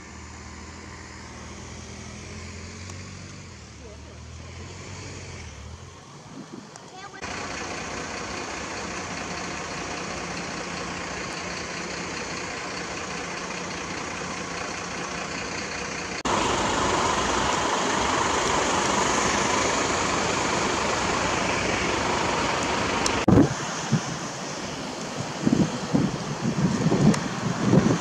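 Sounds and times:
diesel engines idling: 0.0 - 28.0.

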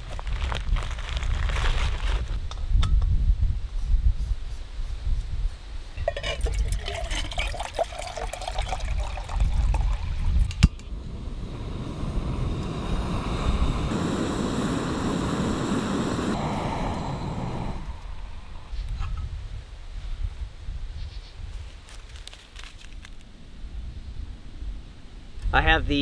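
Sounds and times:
water pouring into metal pot: 6.0 - 10.6.

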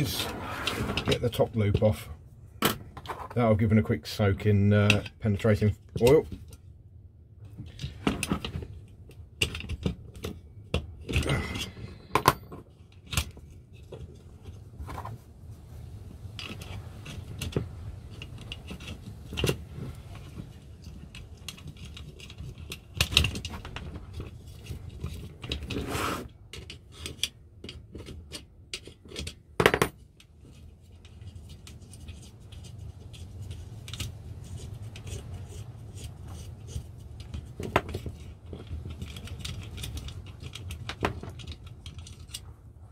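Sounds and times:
metal parts clicking and clinking: 7.6 - 14.6, 16.2 - 25.8, 26.5 - 42.5.

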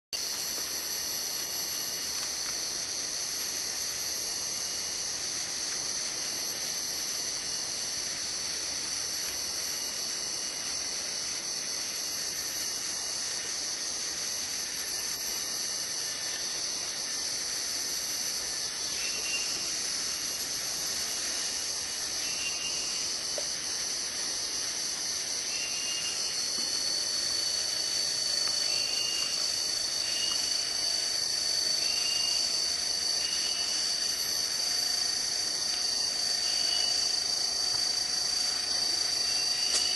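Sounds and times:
insect chorus drone: 0.2 - 39.9
thin high whine: 25.4 - 39.9.

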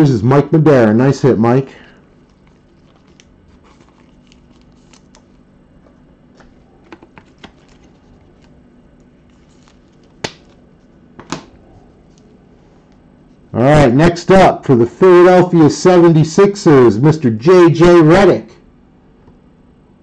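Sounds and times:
trading cards rustling: 2.2 - 5.5, 6.3 - 11.0.

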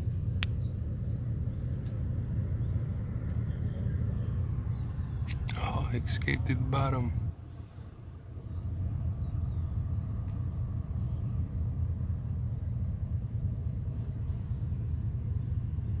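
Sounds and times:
low rumble: 0.0 - 7.6
high-pitched insect chorus: 0.0 - 16.0.

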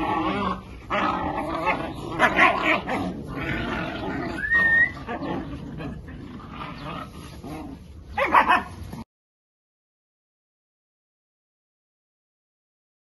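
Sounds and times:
puppies whimpering and yipping: 0.0 - 8.8
puppies barking: 0.0 - 9.0.

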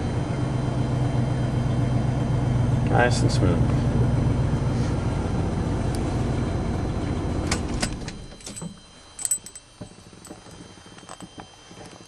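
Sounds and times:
car engine idling: 0.0 - 11.2
keys jingling: 7.5 - 11.3.

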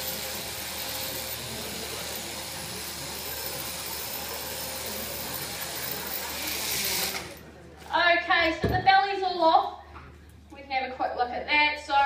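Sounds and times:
electric shearing handpiece buzzing: 0.0 - 7.4.

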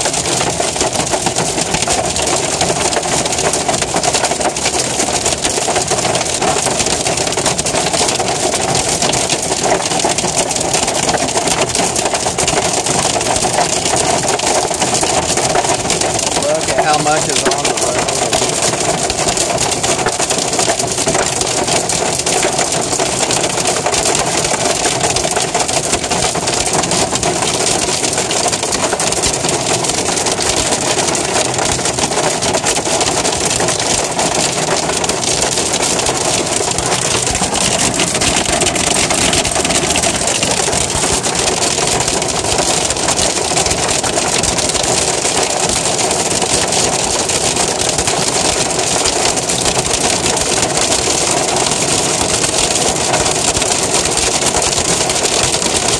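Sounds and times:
hail and rain on car roof: 0.0 - 55.9.

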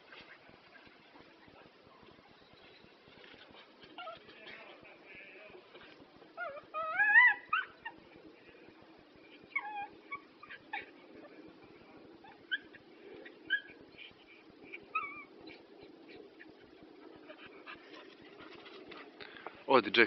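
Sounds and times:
dog whining: 3.9 - 4.3, 6.4 - 8.0, 9.4 - 11.0, 13.4 - 17.5
dog yipping: 6.4 - 8.0, 12.2 - 12.8.

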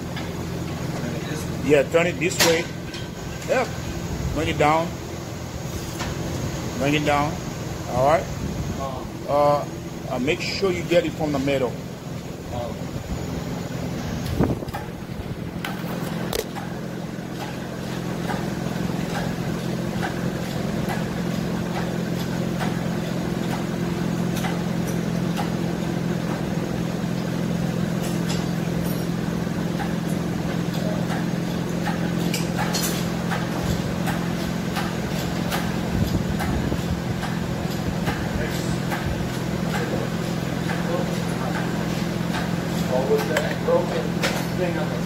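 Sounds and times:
low mechanical hum: 0.0 - 45.0
scattered clicks and knocks: 15.6 - 22.8, 29.8 - 44.6.

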